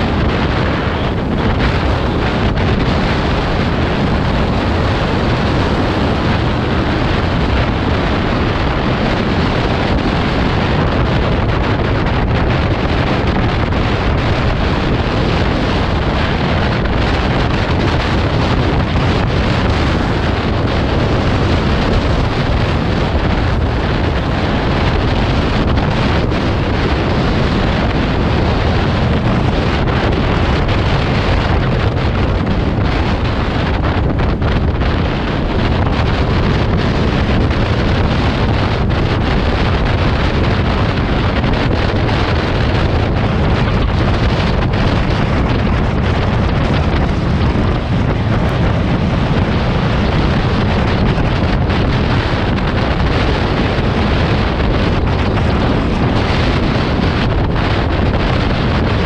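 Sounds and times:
road and vehicle noise: 0:00.0 - 0:59.0
wind buffeting microphone: 0:00.0 - 0:59.0.

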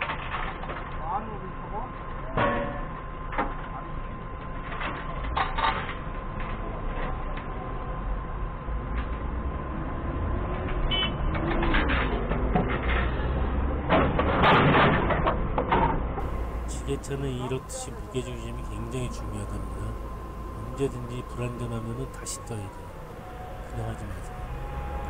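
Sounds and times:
forklift engine idling: 0:16.2 - 0:25.0.

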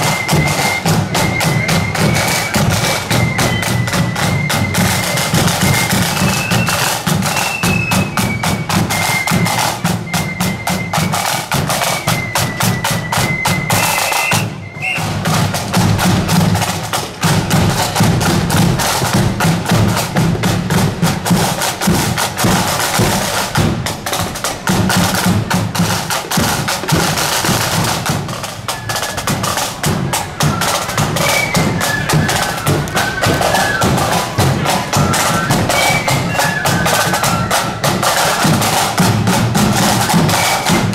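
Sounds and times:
high flute melody: 0:00.0 - 0:40.9
snare and bass drums beating: 0:00.0 - 0:40.9.

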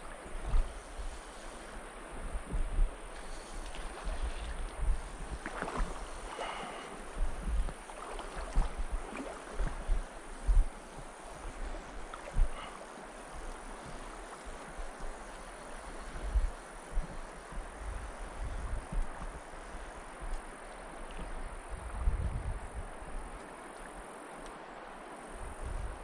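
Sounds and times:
wind buffeting microphone: 0:00.0 - 0:23.4, 0:25.4 - 0:26.0
stream running over cobbles: 0:03.2 - 0:16.9.

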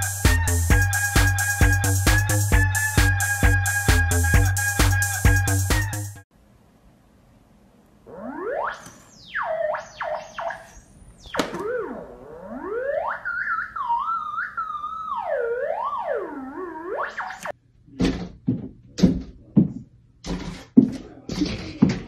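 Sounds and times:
theremin tone gliding in pitch: 0:08.1 - 0:17.5.

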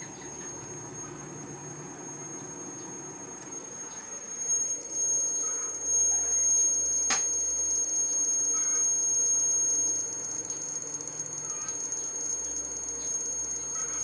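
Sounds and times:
high-pitched electronic whine: 0:00.0 - 0:14.0
sharp click: 0:07.1 - 0:07.3.

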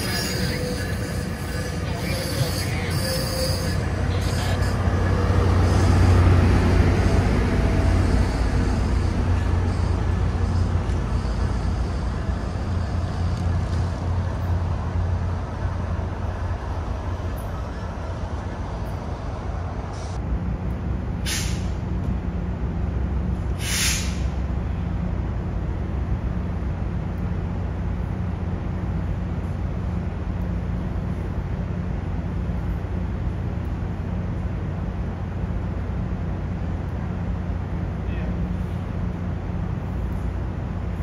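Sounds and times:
diesel locomotive rumbling past: 0:00.0 - 0:41.0
train idling hum: 0:00.0 - 0:41.0
short air hisses: 0:21.2 - 0:21.8, 0:23.6 - 0:24.3.

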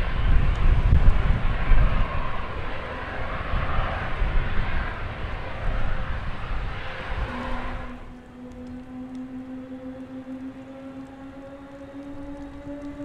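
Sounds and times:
faint thin whine: 0:00.0 - 0:13.0
jet engines rumbling: 0:00.0 - 0:13.0.

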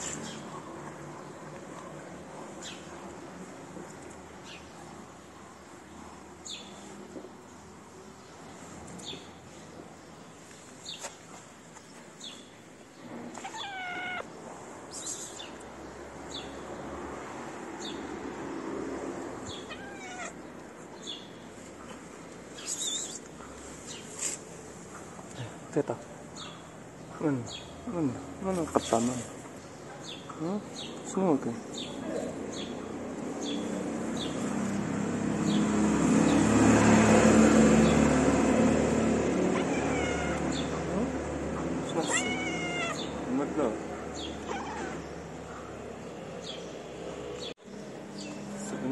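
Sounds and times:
cat meowing: 0:13.4 - 0:14.3, 0:19.5 - 0:20.4, 0:39.4 - 0:40.8, 0:41.9 - 0:43.2, 0:44.4 - 0:45.0
vehicle passing: 0:15.7 - 0:25.7, 0:30.0 - 0:48.9.

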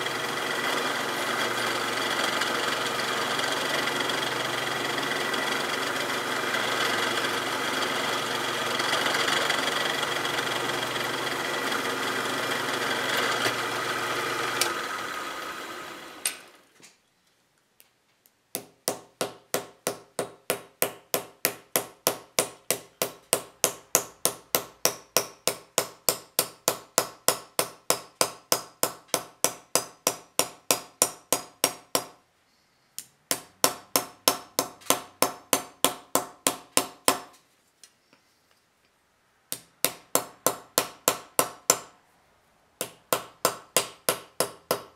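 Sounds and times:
drill press boring metal: 0:00.0 - 0:16.6.

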